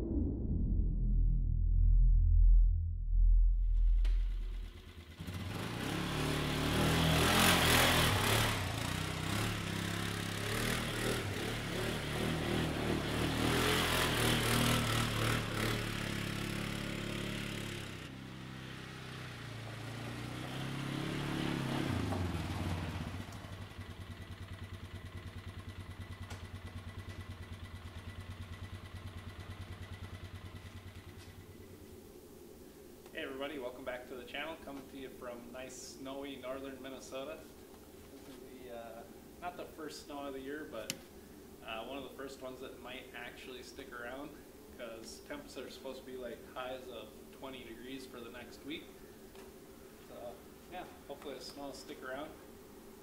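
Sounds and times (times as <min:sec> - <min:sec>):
atv engine revving and idling: 0:03.8 - 0:31.8.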